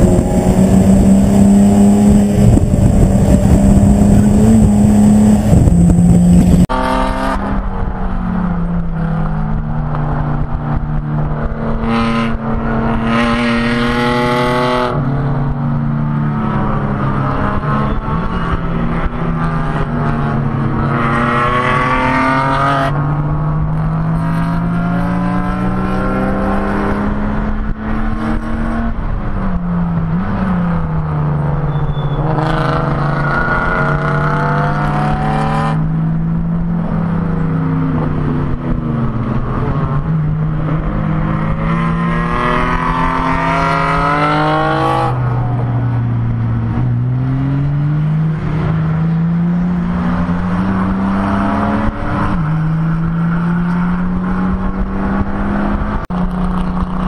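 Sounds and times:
race car engine revving: 0:00.0 - 0:07.9, 0:30.0 - 0:57.0
wind and road noise: 0:00.0 - 0:57.0.

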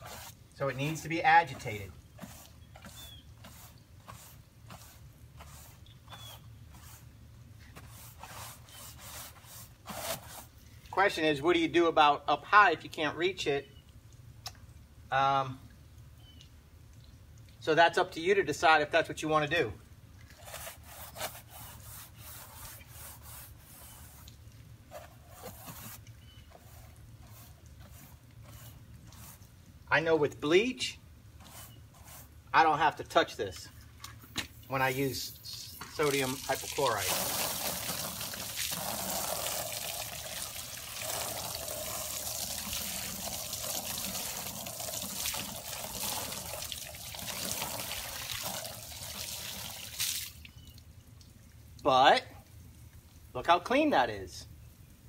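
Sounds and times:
brush scrubbing wet siding: 0:00.0 - 0:11.2, 0:20.3 - 0:30.2, 0:31.3 - 0:50.4.

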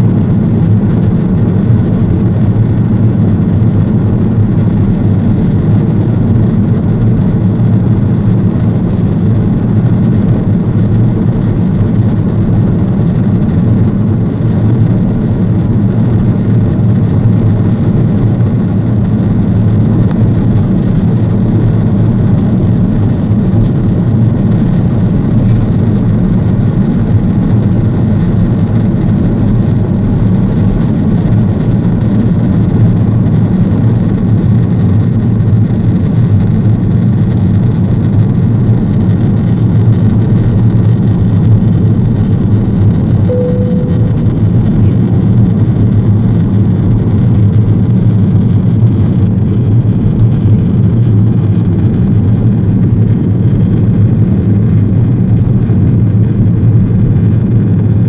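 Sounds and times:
aircraft cabin engine rumble: 0:00.0 - 0:58.0
short tone: 0:43.2 - 0:45.0.

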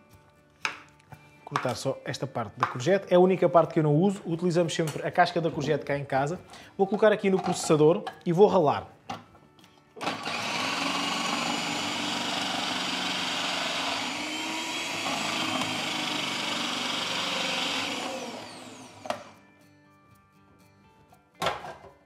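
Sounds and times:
food processor motor grating: 0:10.0 - 0:19.4.

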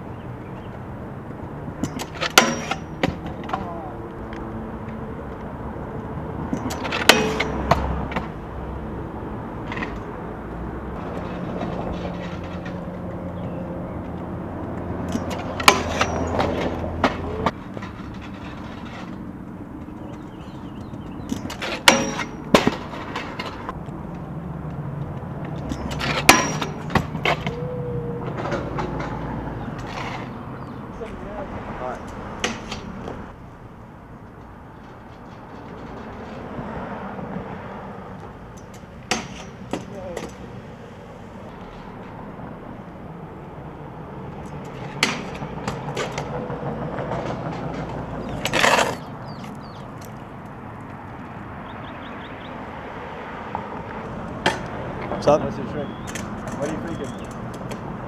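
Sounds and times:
scooter wheels rolling on concrete: 0:00.0 - 0:58.0
scooter clacking on metal rail: 0:01.3 - 0:05.5, 0:06.4 - 0:08.5, 0:10.9 - 0:24.2, 0:25.4 - 0:37.4, 0:38.1 - 0:40.6, 0:44.3 - 0:51.1, 0:53.5 - 0:58.0.

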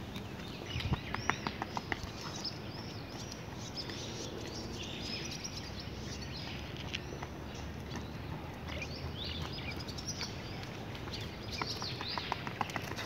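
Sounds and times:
trainers tapping on asphalt: 0:00.0 - 0:04.1, 0:07.0 - 0:13.0
outdoor background noise: 0:00.0 - 0:13.0
small birds chirping: 0:00.0 - 0:13.0.

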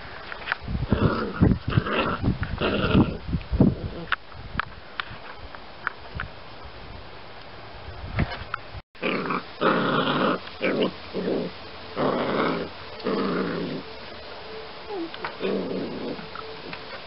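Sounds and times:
puppy growling: 0:00.9 - 0:03.2, 0:09.0 - 0:13.9, 0:14.9 - 0:16.8.

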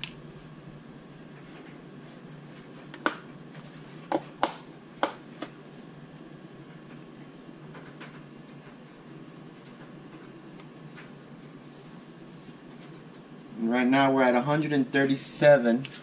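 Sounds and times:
low hum: 0:00.0 - 0:03.5.

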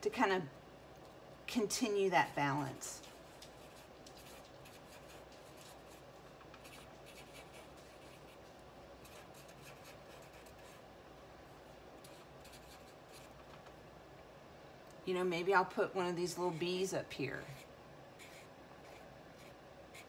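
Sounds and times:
marker scratching on paper: 0:03.0 - 0:06.0, 0:06.6 - 0:08.4, 0:09.0 - 0:10.8, 0:12.0 - 0:13.4, 0:17.4 - 0:20.0.

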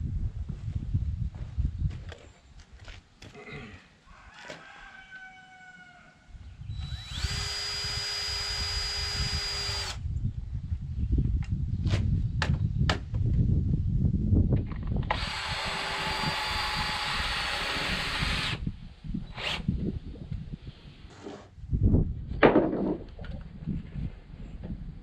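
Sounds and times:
cordless drill whining: 0:06.7 - 0:10.0, 0:15.1 - 0:18.6.

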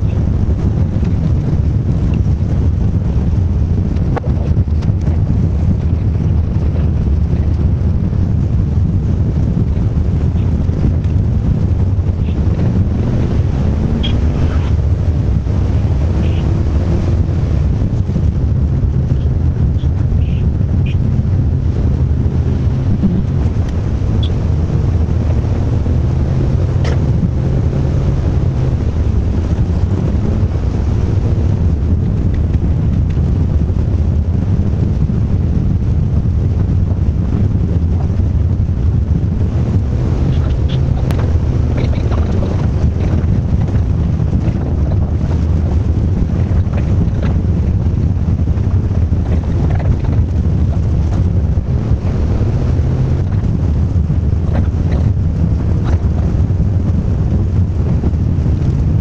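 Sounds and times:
vehicle engine drone: 0:00.0 - 0:59.0
road noise hiss: 0:16.0 - 0:17.0, 0:19.1 - 0:29.2.

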